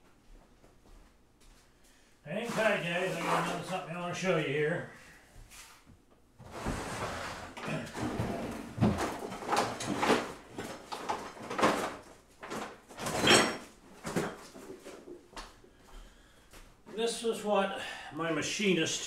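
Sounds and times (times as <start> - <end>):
rummaging knocks and scrapes: 2.4 - 3.9, 6.4 - 15.2.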